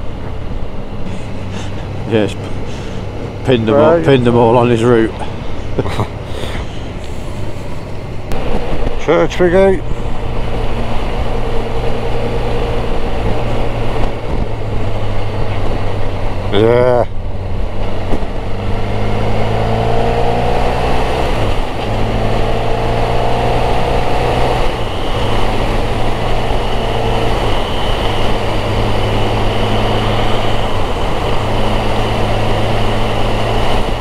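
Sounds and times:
motorcycle engine accelerating: 0.0 - 34.0
wind rush on microphone: 9.8 - 16.5, 20.3 - 34.0.

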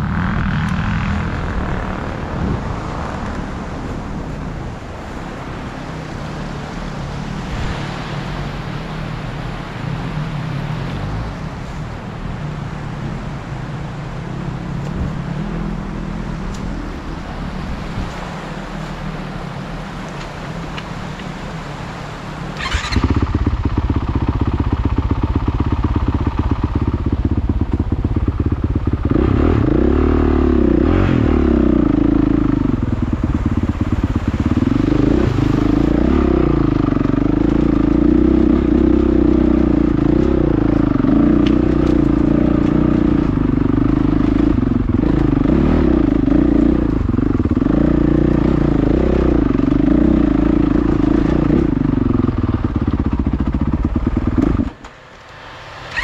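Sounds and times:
dirt bike engine revving: 22.6 - 24.4, 28.9 - 54.8.

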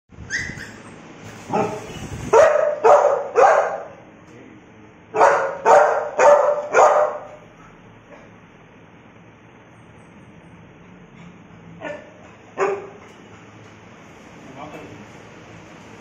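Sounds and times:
dog barking: 1.5 - 4.0, 5.1 - 7.4, 11.8 - 13.1.

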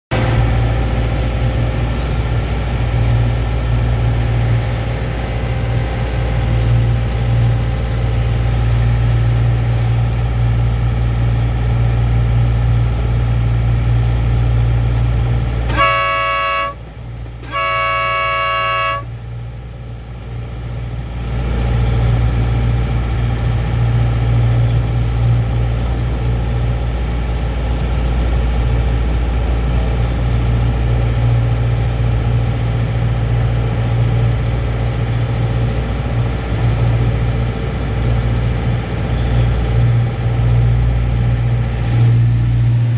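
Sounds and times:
locomotive engine running: 0.1 - 42.9
locomotive horn blasts: 15.6 - 19.2.

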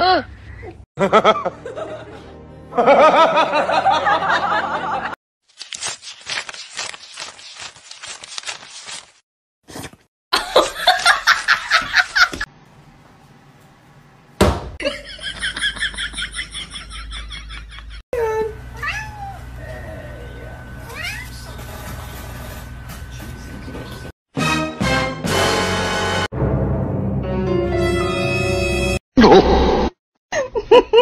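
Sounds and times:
human laughter: 0.1 - 5.2, 10.4 - 12.4, 30.3 - 31.0.

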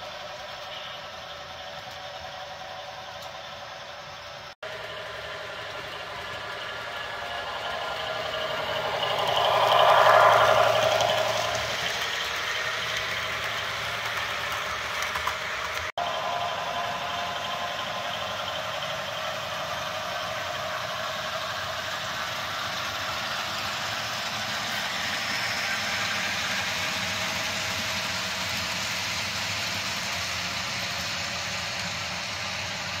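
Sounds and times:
locomotive motors humming: 0.0 - 33.0
model train wheels rolling on rails: 0.0 - 33.0.

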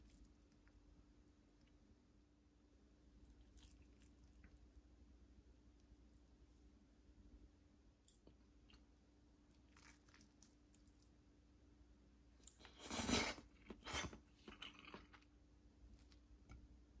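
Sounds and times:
person crunching food: 3.2 - 4.5, 9.6 - 11.2, 12.4 - 15.3.

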